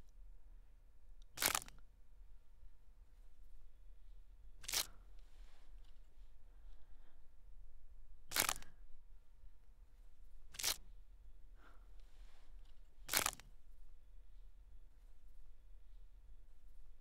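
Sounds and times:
sharp hissing snaps: 8.3s - 8.7s, 10.5s - 10.8s.

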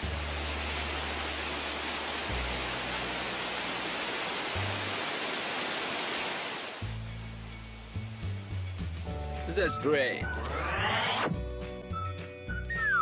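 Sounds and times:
water gushing from a pipe: 0.0s - 6.9s
background music with bass: 6.8s - 13.0s.

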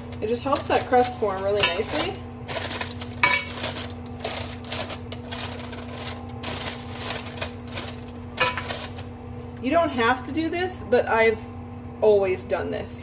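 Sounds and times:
parchment paper crinkling: 0.0s - 9.1s
steady low hum: 0.0s - 13.0s.

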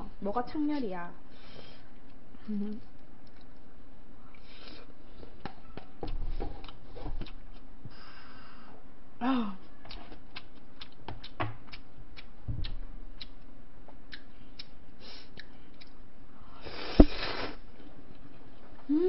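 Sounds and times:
slurp of noodles: 16.6s - 17.6s.

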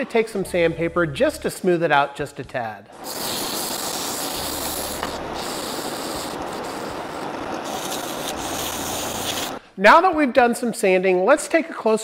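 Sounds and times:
sandpaper rasping on spinning wood: 3.0s - 9.6s.

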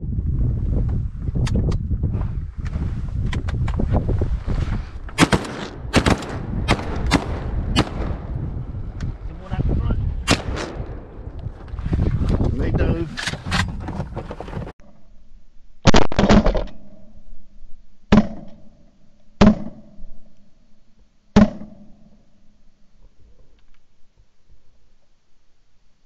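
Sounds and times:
shotgun blasts: 5.2s - 8.6s, 10.2s - 11.2s, 15.8s - 17.0s, 18.1s - 18.7s, 19.4s - 20.0s, 21.3s - 22.1s.

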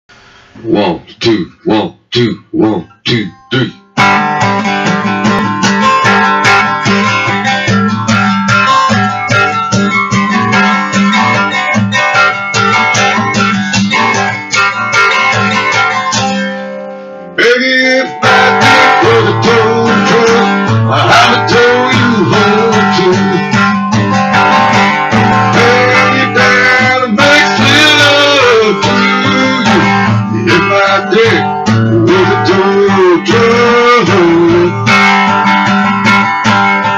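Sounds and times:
acoustic guitar strumming: 0.1s - 36.9s
man singing: 0.6s - 3.8s, 17.4s - 23.8s, 25.1s - 35.1s
person speaking count-in: 0.6s - 3.8s.

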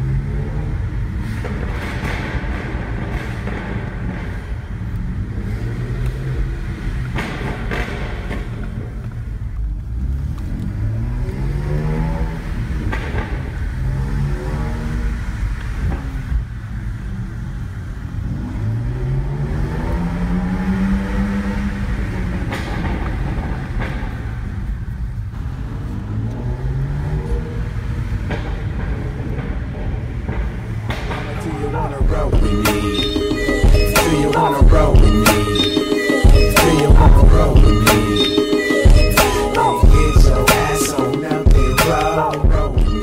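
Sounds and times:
exhaust pops: 0.7s - 10.6s, 12.3s - 14.0s, 21.9s - 26.4s, 27.6s - 43.0s
low engine rumble: 21.6s - 43.0s.

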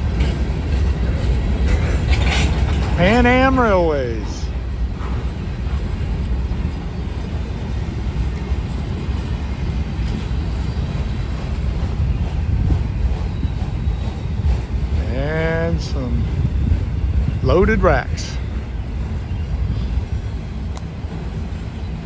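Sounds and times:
freight train wheels on track: 0.0s - 22.0s.

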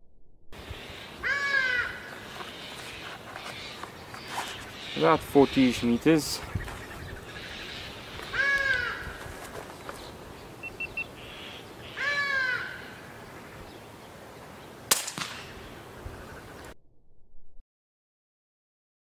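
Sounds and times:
bird calling: 0.6s - 13.9s
air rifle shot: 14.9s - 15.6s.

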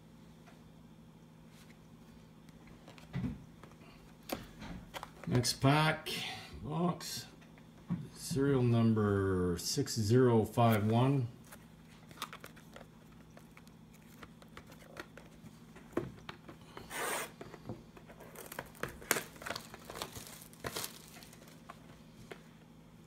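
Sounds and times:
plastic wrap tearing and crinkling: 18.1s - 21.8s.

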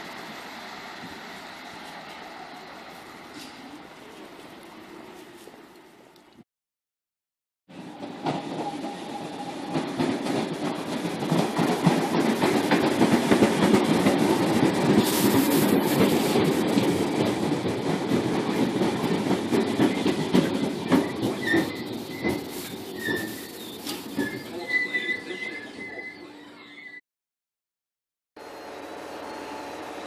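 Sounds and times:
train rumble: 0.0s - 6.2s, 7.7s - 26.4s
brake squeals: 21.0s - 27.0s.

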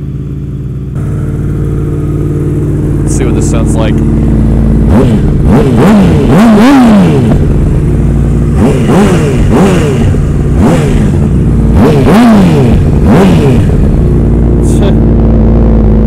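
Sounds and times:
motorcycle engine revving: 0.0s - 16.0s.

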